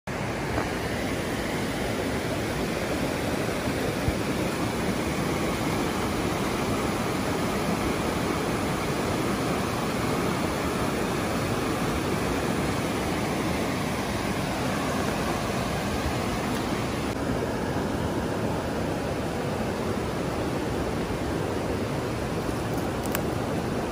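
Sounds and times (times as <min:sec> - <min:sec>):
river water rushing over rocks: 0:00.1 - 0:23.9.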